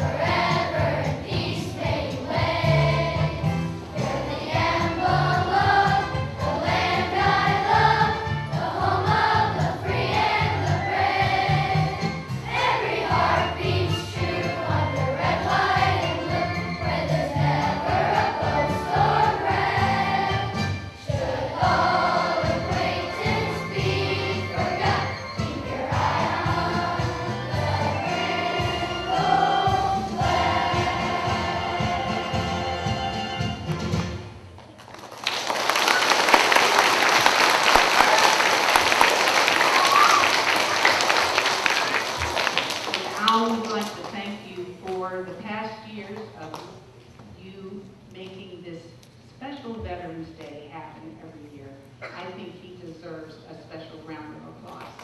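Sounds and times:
children's choir singing: 0.0s - 33.4s, 36.1s - 43.1s
musical accompaniment: 0.0s - 34.6s.

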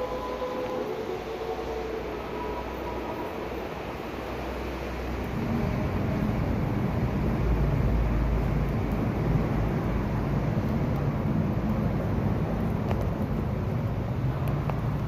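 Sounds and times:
passing vehicle rumble: 0.0s - 15.0s.

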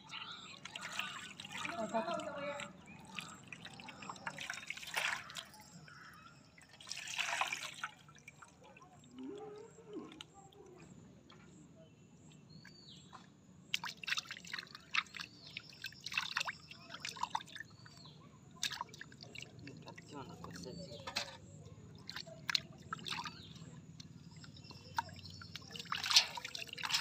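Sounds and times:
water splashing in a steel bowl: 0.1s - 10.4s, 13.7s - 27.0s.

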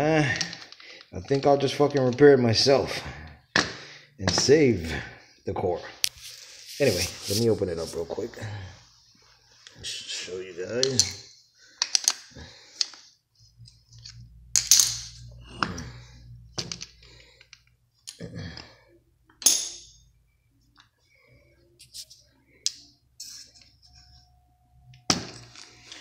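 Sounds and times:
metal parts clinking on concrete: 11.8s - 13.0s, 14.0s - 15.4s, 19.4s - 20.0s.

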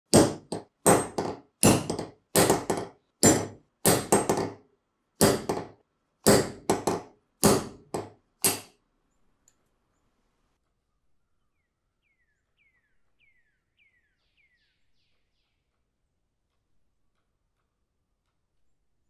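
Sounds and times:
hammer striking metal punch: 0.1s - 4.6s, 5.2s - 8.7s.

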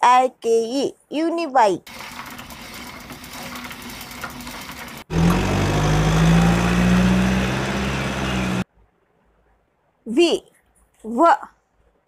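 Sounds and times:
van engine deep hum: 1.9s - 8.6s.

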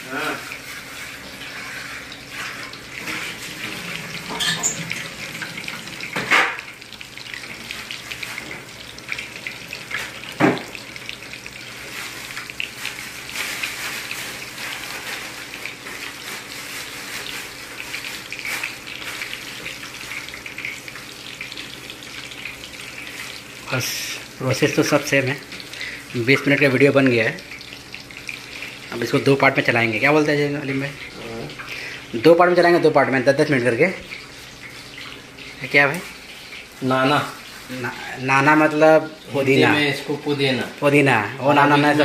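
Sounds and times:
chicken deep-frying in oil: 0.0s - 42.0s
tap running into metal sink: 10.4s - 10.8s.

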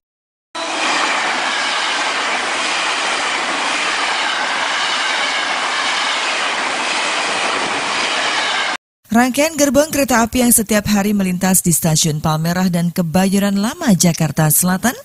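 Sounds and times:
train wheels rumbling on rails: 0.6s - 8.8s.

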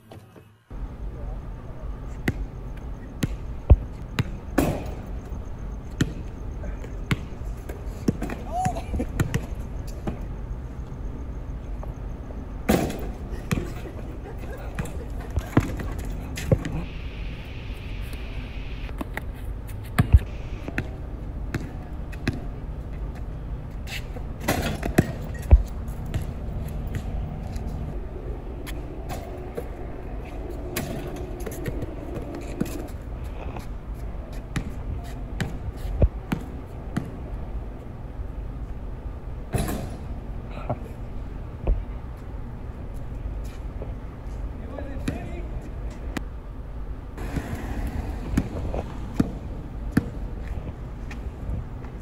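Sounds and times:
low street hum: 0.0s - 52.0s
basketball bouncing on pavement: 2.2s - 5.1s, 5.8s - 10.3s, 12.7s - 13.8s, 19.9s - 23.3s, 23.9s - 27.8s, 34.3s - 34.8s, 35.4s - 37.2s, 48.3s - 51.2s.

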